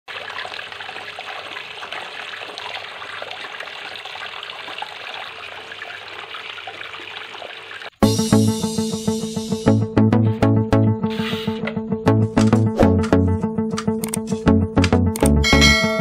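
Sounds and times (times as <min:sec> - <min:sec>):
water trickling onto pebbles: 0:00.1 - 0:08.0.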